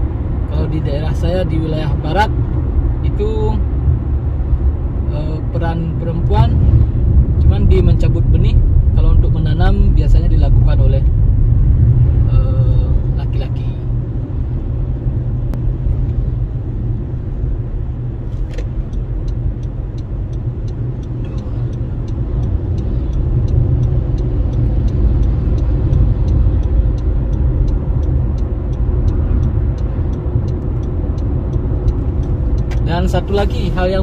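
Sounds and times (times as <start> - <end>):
vehicle road and engine rumble: 0.0 - 34.0
faint regular ticking: 18.3 - 34.0.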